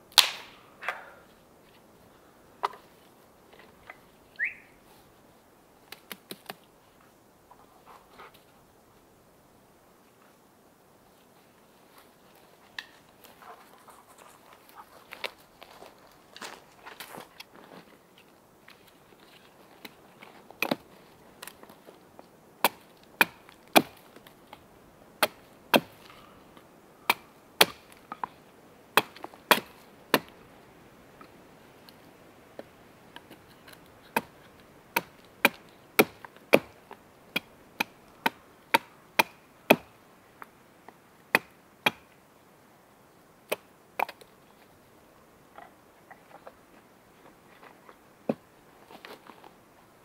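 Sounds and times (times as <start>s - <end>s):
wood being chopped: 0.1s - 0.6s, 22.6s - 24.1s, 25.2s - 26.1s, 27.1s - 28.0s, 29.0s - 30.3s, 33.2s - 39.9s, 41.3s - 42.1s.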